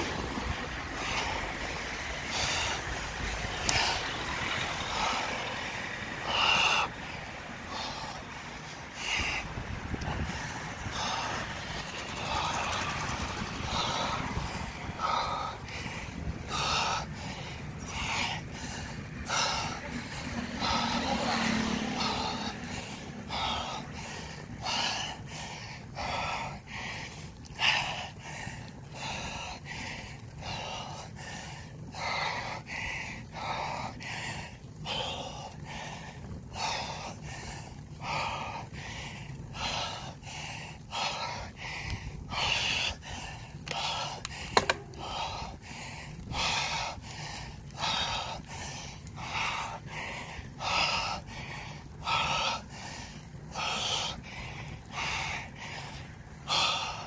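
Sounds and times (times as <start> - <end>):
person panting hard: 0.0 - 57.0
wind and riding noise: 0.0 - 57.0
sharp click: 44.5 - 44.9.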